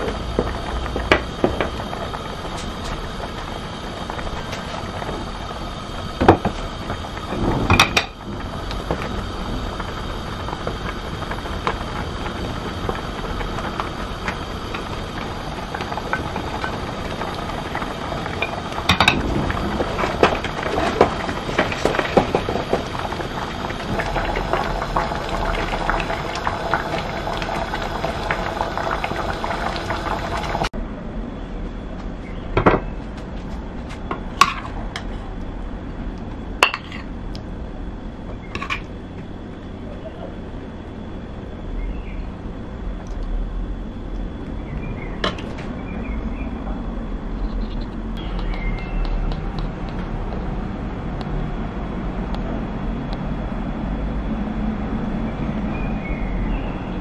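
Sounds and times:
stew simmering in a pot: 0:00.0 - 0:30.8.

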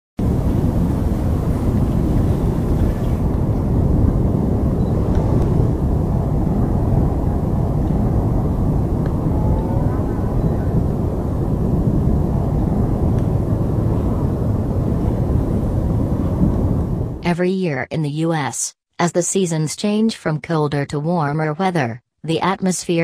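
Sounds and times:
deep roar of strong wind: 0:00.2 - 0:17.2.

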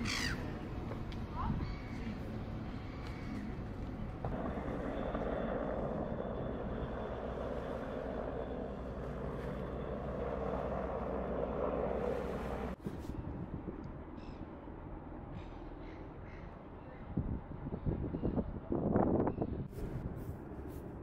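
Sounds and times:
engine droning: 0:00.0 - 0:12.8
low hum: 0:00.0 - 0:18.0.

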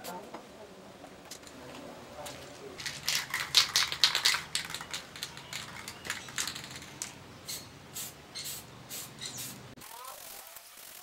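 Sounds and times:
spray can hissing: 0:07.5 - 0:11.0.

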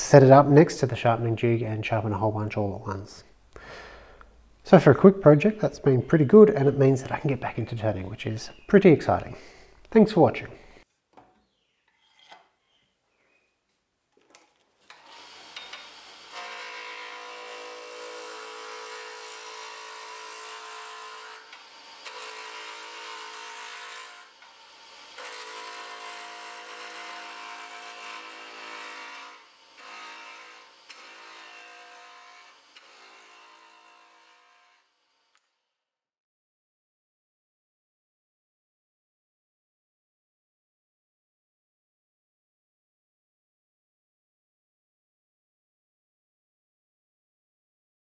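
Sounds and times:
wood lathe cutting wood: 0:14.8 - 0:35.4.

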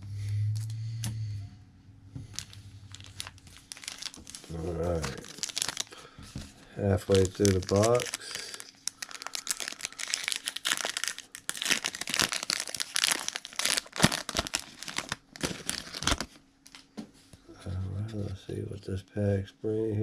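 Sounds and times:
foil wrapper crinkling and tearing: 0:02.3 - 0:06.2, 0:06.8 - 0:16.8.

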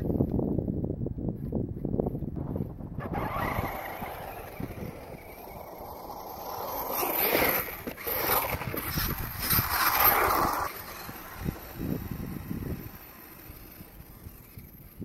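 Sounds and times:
rc car motor whining: 0:03.0 - 0:15.0
tyres churning snow: 0:03.0 - 0:15.0.

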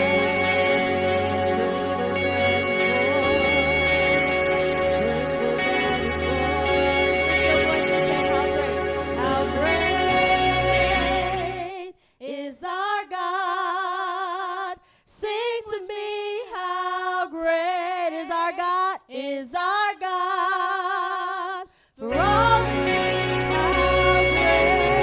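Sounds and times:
instrumental accompaniment: 0:00.0 - 0:11.8, 0:22.1 - 0:25.0
woman singing: 0:00.0 - 0:25.0.

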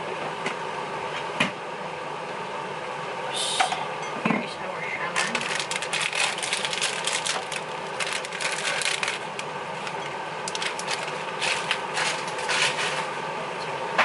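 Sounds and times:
plastic bag crinkling: 0:05.1 - 0:13.2.

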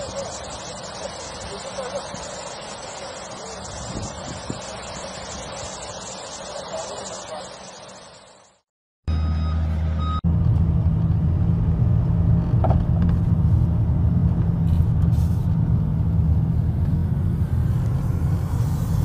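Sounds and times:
road noise: 0:00.0 - 0:19.0
car engine rumble: 0:09.1 - 0:19.0.

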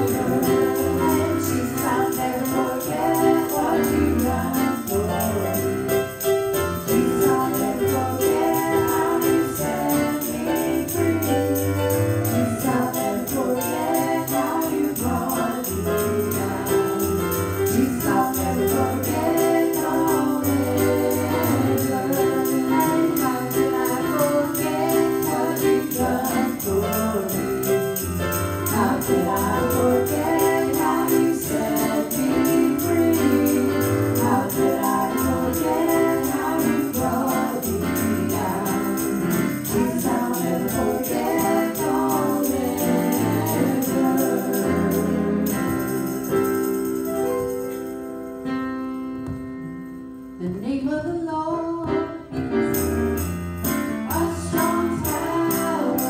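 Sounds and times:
women singing in harmony: 0:00.0 - 0:46.4, 0:54.0 - 0:56.0
jingling tambourine beat: 0:00.0 - 0:48.4, 0:52.7 - 0:56.0
keyboard accompaniment: 0:00.0 - 0:56.0.

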